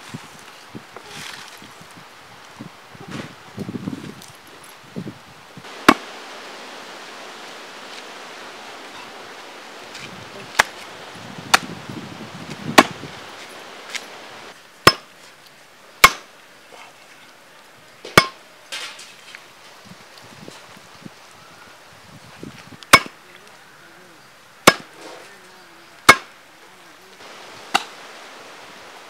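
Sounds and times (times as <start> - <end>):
blade chopping on wooden block: 14.8 - 15.1, 16.0 - 16.3, 22.9 - 23.1, 24.7 - 24.9, 26.1 - 26.3.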